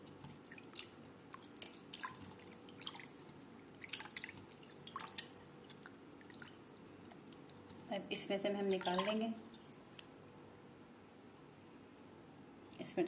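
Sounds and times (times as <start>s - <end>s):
hands splashing in water: 0.2s - 3.2s, 3.8s - 6.5s.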